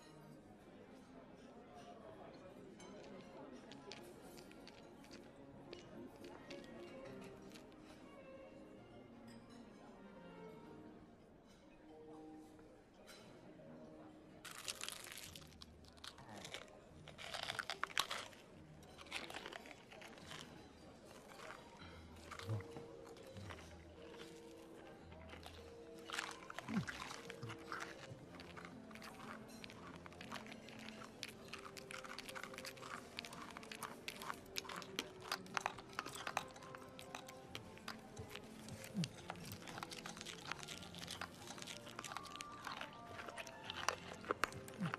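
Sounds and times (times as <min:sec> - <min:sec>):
shell crunching as it is chewed: 0:03.0 - 0:07.8, 0:14.4 - 0:44.9.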